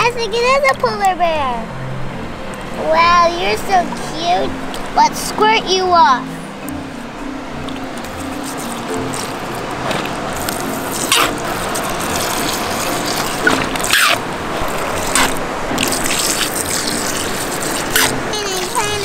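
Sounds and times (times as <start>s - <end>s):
background music: 0.0s - 19.0s
water splashes: 7.6s - 19.0s
water squirting into tub: 8.5s - 19.0s.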